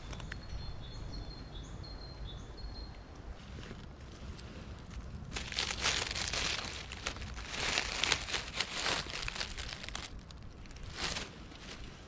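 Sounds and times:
dry leaves crackling and rustling: 4.7s - 12.0s.

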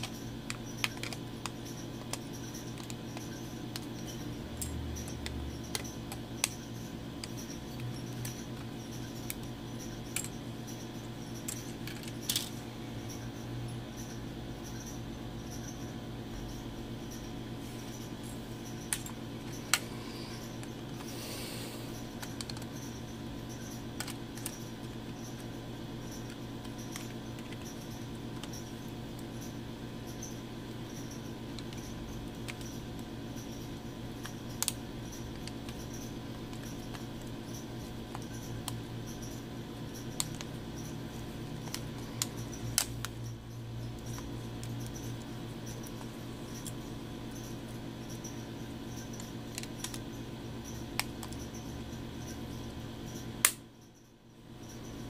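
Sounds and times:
small phone parts clicking: 0.0s - 10.4s, 11.3s - 12.6s, 22.0s - 25.5s, 40.0s - 43.3s, 43.9s - 51.6s
steady low hum: 0.0s - 55.0s.

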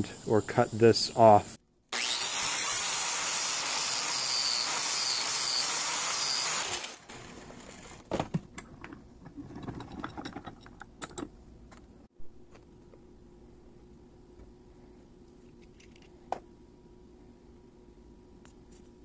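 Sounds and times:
angle grinder grinding metal: 2.0s - 8.1s
metal parts clicking and tapping: 9.6s - 11.9s, 15.5s - 16.1s.

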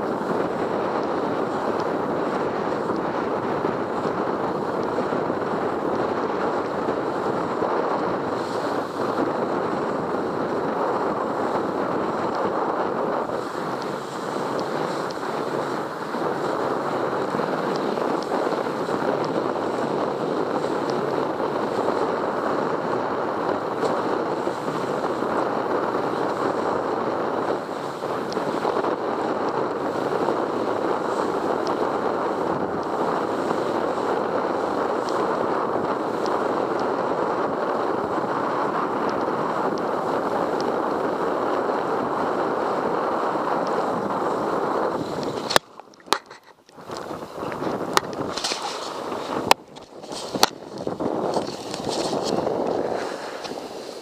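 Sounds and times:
wind buffeting microphone: 0.0s - 54.0s
water spray: 51.0s - 54.0s.

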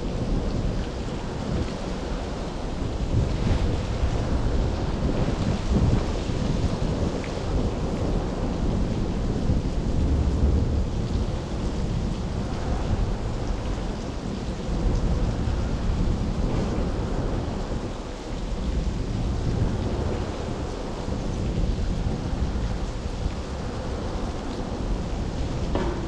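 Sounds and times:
heavy rain hissing: 0.0s - 26.0s
traffic rumbling overhead: 8.0s - 26.0s.

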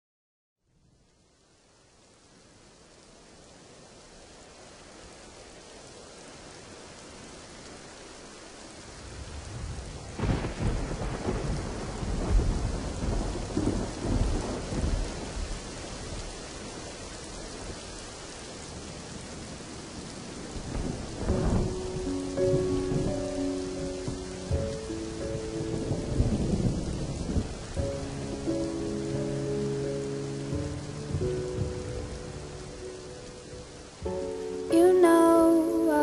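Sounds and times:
steady rain: 0.6s - 36.0s
rolling thunder: 9.0s - 18.1s, 18.7s - 35.1s.

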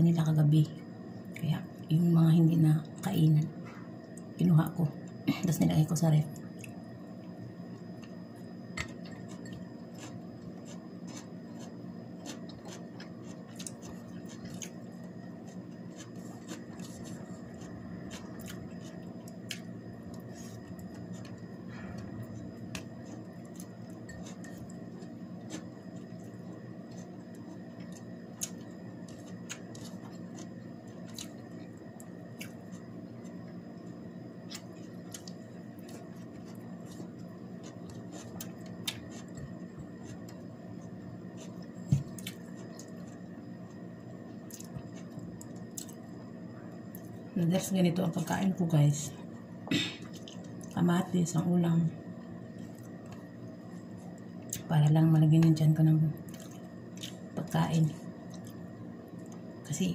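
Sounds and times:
low room hum: 0.0s - 59.9s
person chewing: 8.8s - 43.8s, 44.4s - 46.0s, 50.0s - 50.8s, 56.3s - 57.3s, 58.2s - 58.6s.

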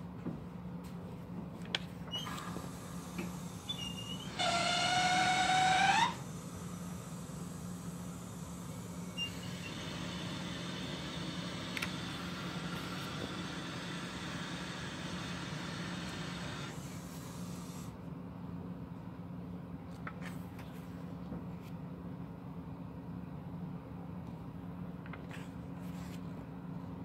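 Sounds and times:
background hum and hiss: 0.0s - 27.0s
book pages turning: 25.2s - 26.3s.

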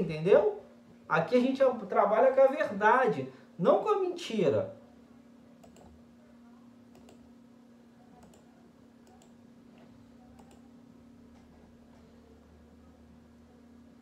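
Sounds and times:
steady low hum: 0.0s - 14.0s
computer mouse clicks: 5.6s - 6.0s, 6.9s - 7.2s, 8.2s - 9.4s, 10.4s - 10.7s.

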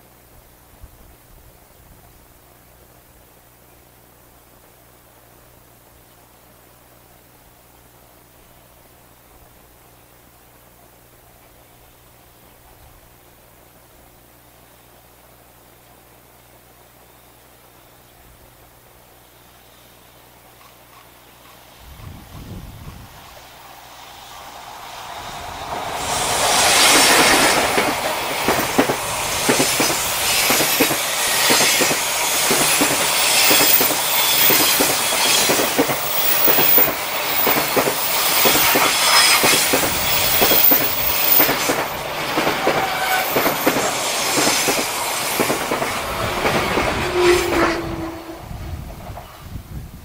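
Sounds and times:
freight train wagons clattering: 26.7s - 47.8s
wheel squeal: 42.6s - 43.9s.

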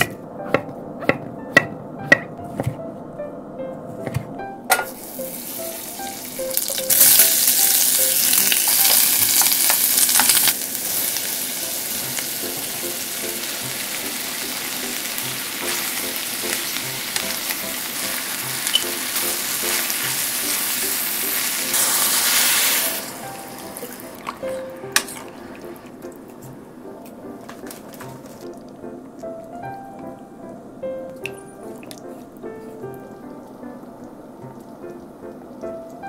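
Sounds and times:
food sizzling in a saucepan: 4.7s - 25.9s.

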